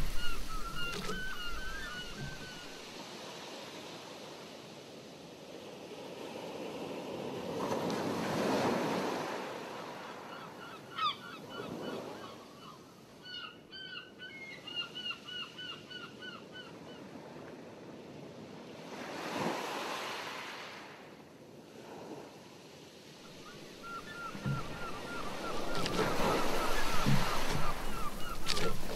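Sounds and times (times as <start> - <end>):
water birds calling: 0.0 - 3.0, 9.2 - 17.2, 23.1 - 28.9
waves sloshing and splashing: 0.0 - 10.3, 17.2 - 28.9.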